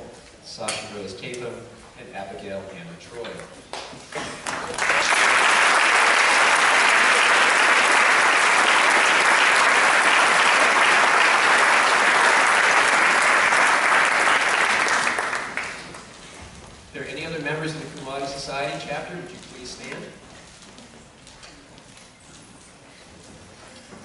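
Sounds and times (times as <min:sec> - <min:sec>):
audience applauding: 0:03.8 - 0:16.2.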